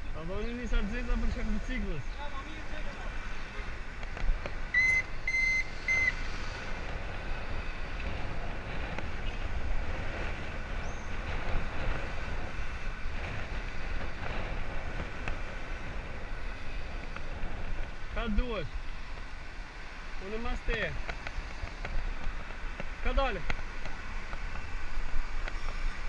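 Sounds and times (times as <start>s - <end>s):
bicycle tyre and road noise: 0.0s - 26.0s
wind rumble on microphone: 0.0s - 26.0s
short high beeps: 4.7s - 6.2s.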